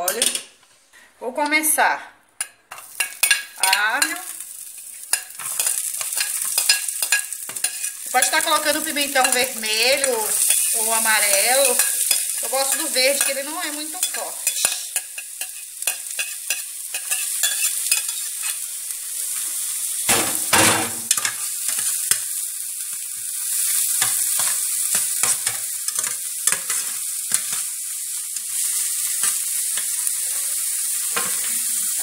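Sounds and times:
vegetables sizzling in hot oil: 2.4 - 32.0
metal spoon scraping a pot: 5.1 - 8.4, 14.0 - 18.5.

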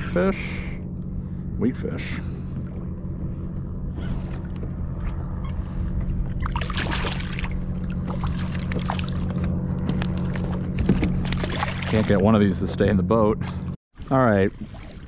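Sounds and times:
low rumble: 0.0 - 14.6
fish splashing in water: 6.4 - 12.1.

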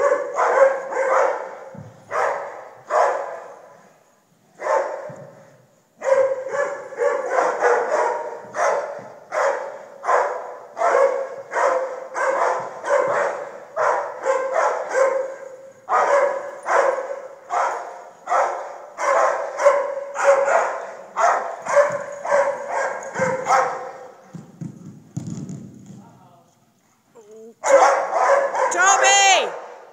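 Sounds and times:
dog barking: 0.0 - 3.6, 4.6 - 5.2, 6.0 - 24.2, 27.6 - 29.9.

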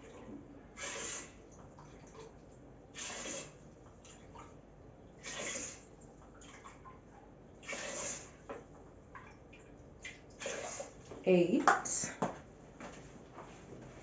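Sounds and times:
water splashing into pot: 0.8 - 2.3, 7.6 - 8.5.

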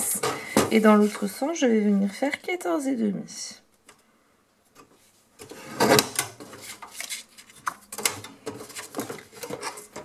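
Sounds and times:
paper scraping: 5.5 - 7.8.

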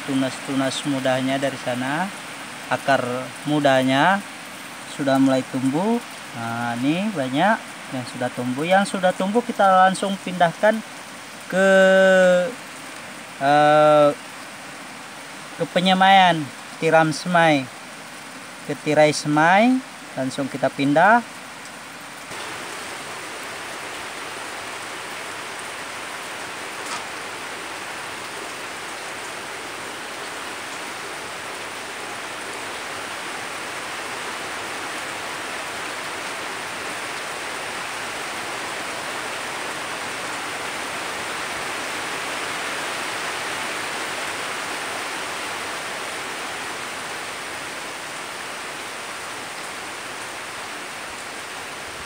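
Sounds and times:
steady hiss: 22.3 - 38.2.

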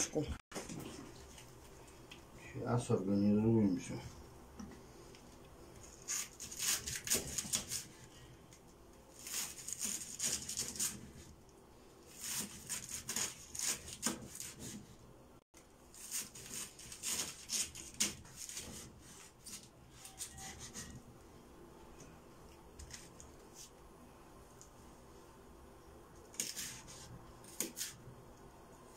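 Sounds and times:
knife slicing cabbage on board: 6.1 - 8.0, 9.2 - 11.1, 12.1 - 14.9, 16.0 - 21.0, 26.4 - 28.0.

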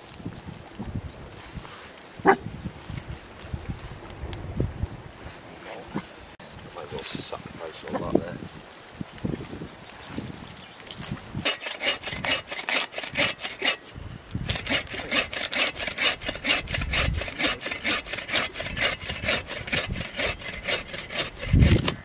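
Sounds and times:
hand saw cutting wood: 11.4 - 22.0.

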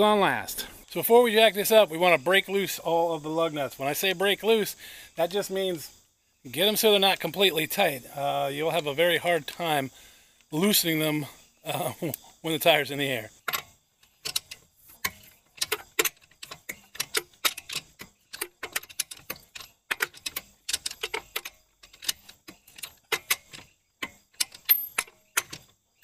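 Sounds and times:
socket ratchet clicking: 13.4 - 25.9.

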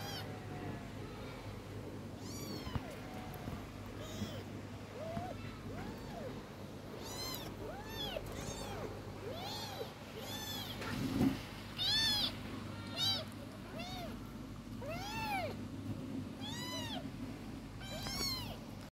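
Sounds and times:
kittens mewing: 0.0 - 0.5, 2.1 - 11.2, 11.8 - 15.6, 16.4 - 17.1, 17.8 - 18.6.

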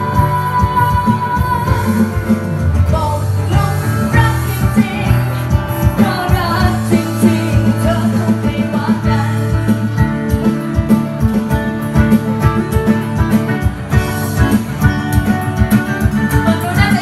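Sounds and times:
woman singing into microphone: 0.0 - 10.0, 16.3 - 17.0
strummed acoustic guitar: 0.0 - 17.0.

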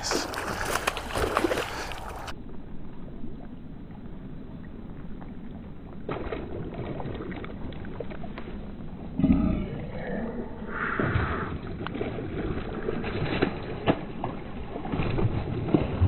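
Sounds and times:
fish splashing at water surface: 0.0 - 2.4, 6.0 - 8.6, 10.9 - 16.0.

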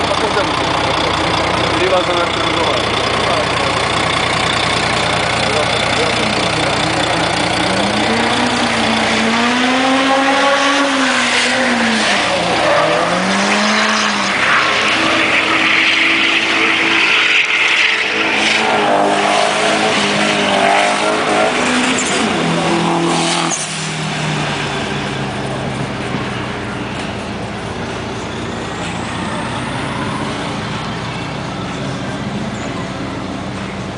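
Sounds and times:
low engine idle: 0.0 - 7.7
car engines revving: 0.0 - 33.9.

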